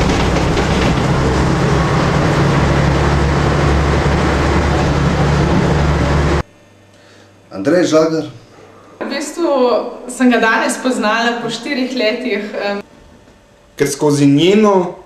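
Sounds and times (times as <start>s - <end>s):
bus interior rumble: 0.0s - 6.5s.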